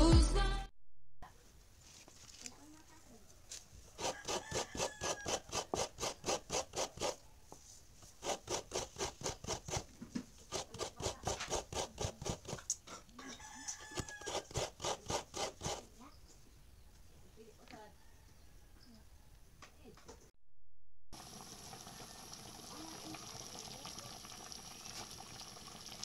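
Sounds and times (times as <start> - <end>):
coconut rasping on metal grater: 4.0 - 7.2, 8.0 - 12.8, 13.7 - 15.9.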